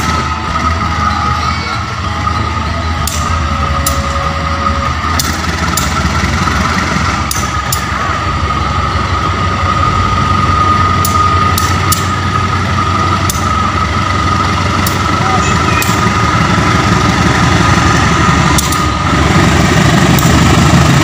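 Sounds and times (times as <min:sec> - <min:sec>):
high whine: 0:00.0 - 0:21.0
locomotive engine rumble: 0:00.0 - 0:21.0
sharp clicks: 0:18.5 - 0:18.9.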